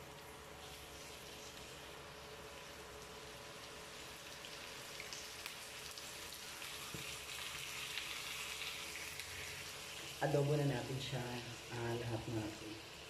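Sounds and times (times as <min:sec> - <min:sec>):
small popping of frying: 0:00.0 - 0:10.2
chicken sizzling in a pan: 0:00.0 - 0:13.0.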